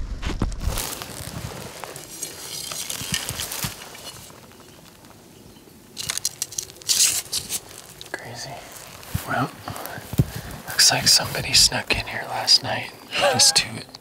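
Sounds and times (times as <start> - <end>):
dry twigs and grass rustling: 0.5 - 13.7.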